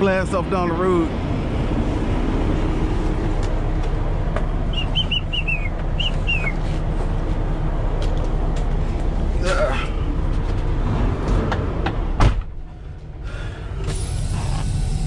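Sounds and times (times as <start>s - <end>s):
diesel engine rumbling: 0.0s - 15.0s
short high chirps: 4.7s - 6.6s.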